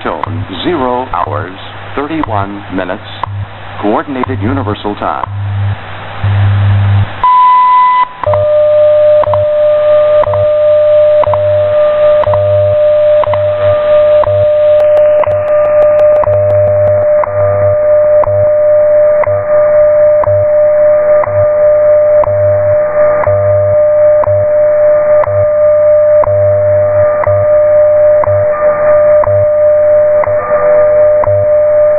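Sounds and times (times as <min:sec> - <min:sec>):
steady tone with ticks: 0:00.0 - 0:01.4, 0:02.0 - 0:05.5, 0:08.0 - 0:31.9
radio static hiss: 0:00.0 - 0:07.2, 0:11.3 - 0:31.5
pulsing low hum: 0:00.0 - 0:31.9
high time signal tone: 0:07.2 - 0:31.9.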